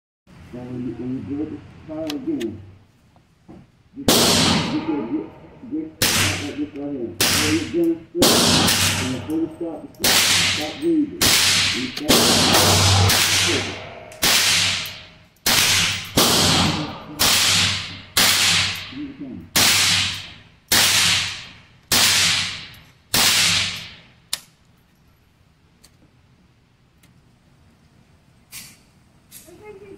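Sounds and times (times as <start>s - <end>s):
gunshots echoing indoors: 4.0s - 24.1s.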